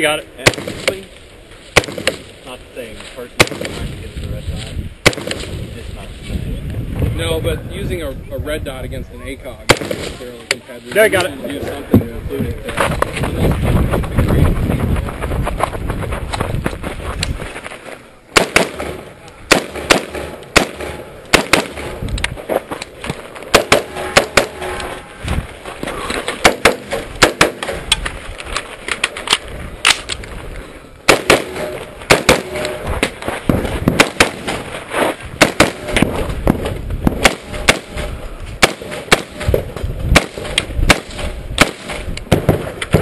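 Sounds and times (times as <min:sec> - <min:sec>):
rifle shots: 0:00.4 - 0:01.0, 0:01.7 - 0:02.4, 0:03.4 - 0:03.9, 0:05.0 - 0:05.7, 0:09.7 - 0:10.2, 0:18.3 - 0:22.0, 0:23.5 - 0:25.0, 0:26.2 - 0:28.1, 0:31.0 - 0:43.0.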